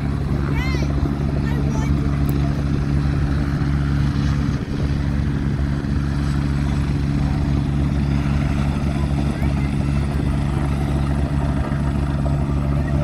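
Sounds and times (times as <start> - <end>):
helicopter rotor and engine: 0.0 - 13.0.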